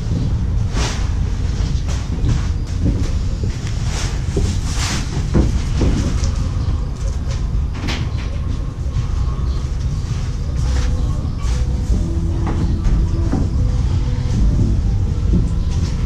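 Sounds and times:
steady low rumble: 0.0s - 16.0s
footsteps on wooden planks: 0.1s - 6.6s, 10.7s - 16.0s.

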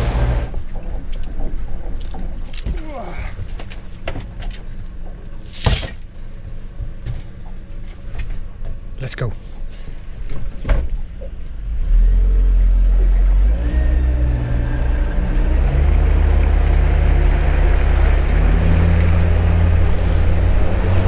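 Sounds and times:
boat engine running: 0.0s - 5.6s, 6.2s - 21.0s
rushing wind and water: 16.3s - 21.0s.

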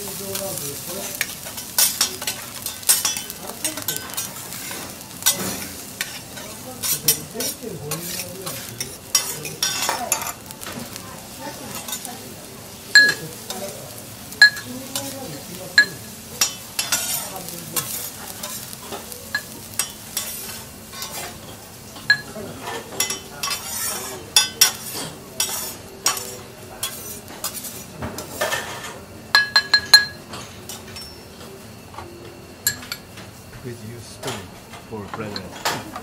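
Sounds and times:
faint sizzle: 0.0s - 36.0s
metal spatula scraping on griddle: 0.1s - 11.0s, 14.4s - 29.0s.

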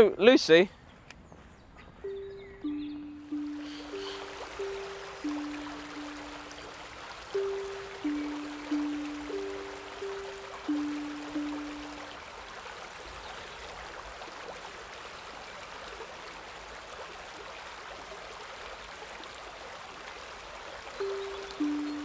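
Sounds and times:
background music note: 2.0s - 12.2s, 21.0s - 22.0s
stream running over stones: 2.6s - 22.0s.

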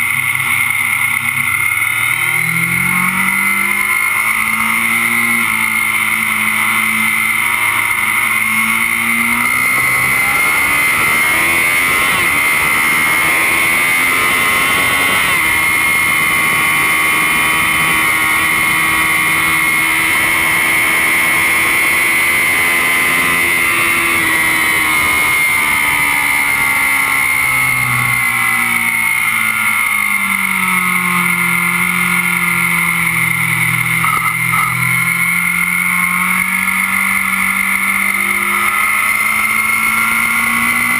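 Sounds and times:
motorcycle engine at speed: 0.0s - 40.9s.

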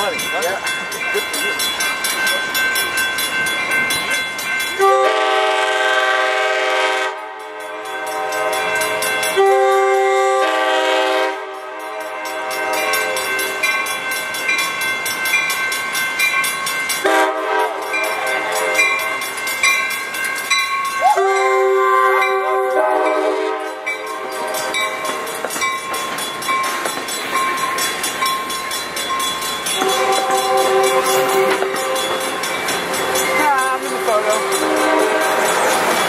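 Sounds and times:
train rolling: 0.0s - 36.0s
train horn blasts: 4.8s - 13.6s, 17.0s - 19.2s, 21.2s - 25.3s, 29.8s - 32.4s, 34.2s - 35.6s.

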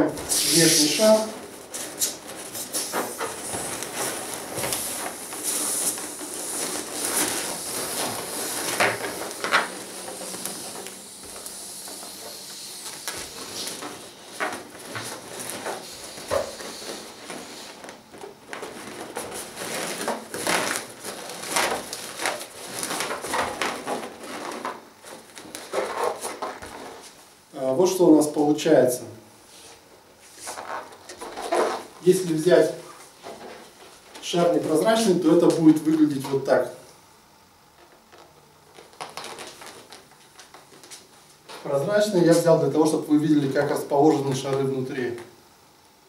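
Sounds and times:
latex balloons squeaking and rubbing: 0.0s - 27.2s, 30.4s - 35.1s, 38.7s - 40.1s
air hissing out of balloon: 0.2s - 18.0s.

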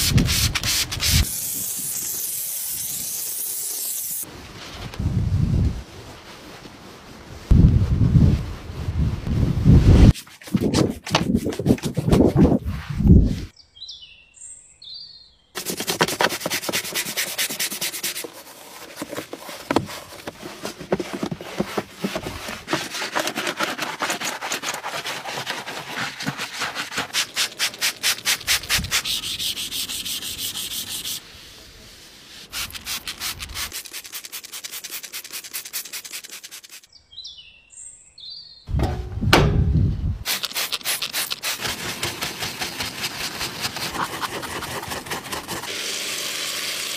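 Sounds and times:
stiff brush scrubbing: 6.2s - 13.5s, 15.6s - 36.9s, 40.2s - 46.2s.

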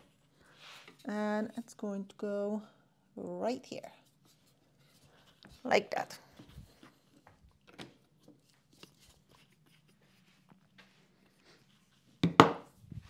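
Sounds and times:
objects knocking on hard surface: 12.2s - 12.6s.

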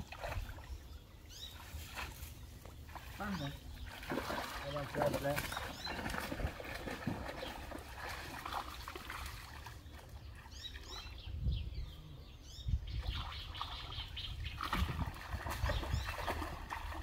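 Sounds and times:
muddy water sloshing and splashing: 0.0s - 11.4s, 12.9s - 17.0s
bird chirps: 0.6s - 4.0s, 9.8s - 14.8s.

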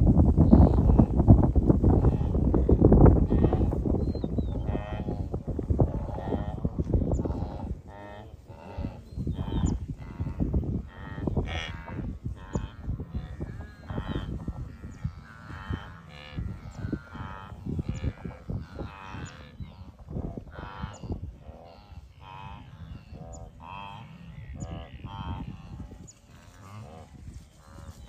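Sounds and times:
wildebeest grunting and lowing: 0.4s - 28.0s.

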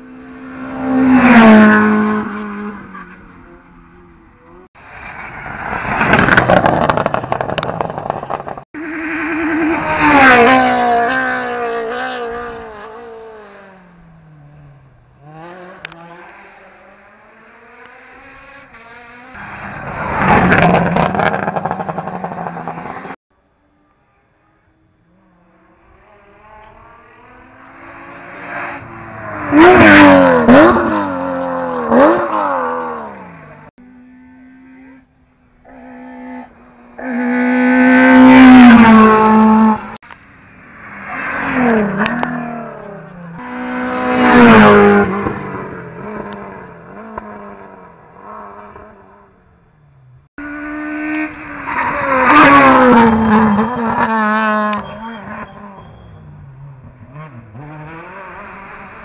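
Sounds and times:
rally cars passing at speed: 0.0s - 23.2s, 24.9s - 59.0s
engines revving through gear changes: 9.2s - 23.2s, 25.8s - 40.1s, 41.1s - 49.3s, 50.2s - 59.0s.

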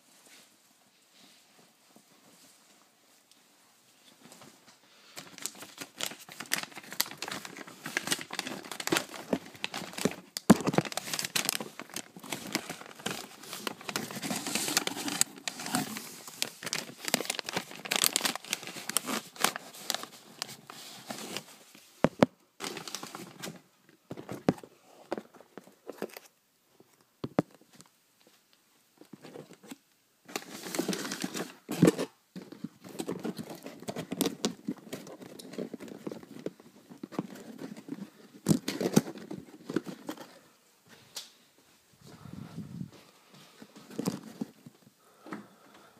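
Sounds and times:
plastic packaging crinkling: 5.1s - 21.6s, 22.6s - 24.7s, 29.0s - 40.5s, 43.8s - 44.8s.

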